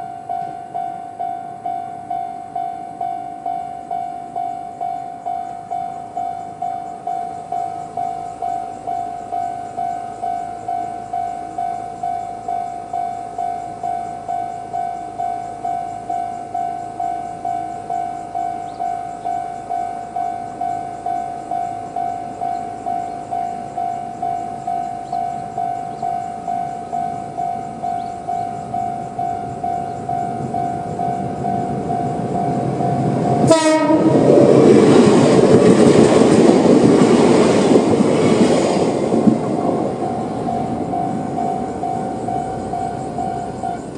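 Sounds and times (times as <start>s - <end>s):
level-crossing warning bell: 0.0s - 43.9s
train wheel and rail noise: 0.0s - 43.9s
train horn blast: 33.4s - 34.3s.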